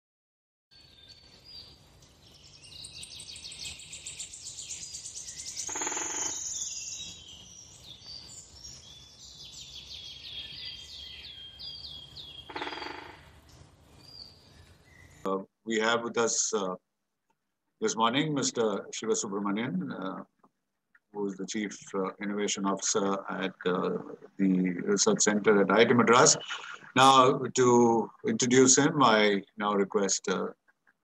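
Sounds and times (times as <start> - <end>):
high bird chirps and trills: 0.7 - 15.3
low buzzy bird call: 2.7 - 15.4, 23.1 - 29.4.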